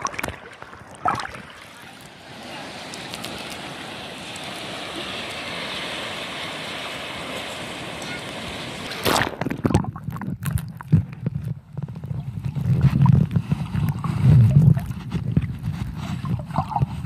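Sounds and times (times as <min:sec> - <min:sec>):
water splashing against camera: 0:00.0 - 0:05.7, 0:07.9 - 0:17.0
surf rushing: 0:00.0 - 0:09.9.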